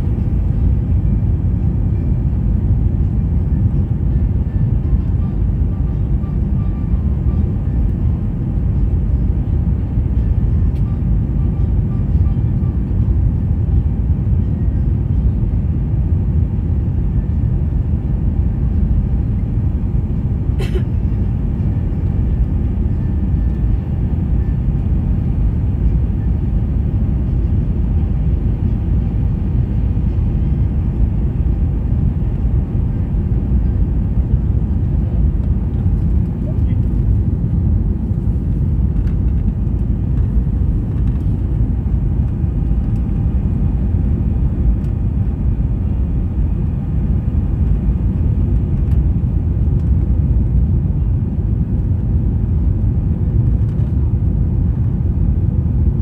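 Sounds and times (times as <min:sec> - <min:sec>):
airliner cabin rumble: 0:00.0 - 0:56.0.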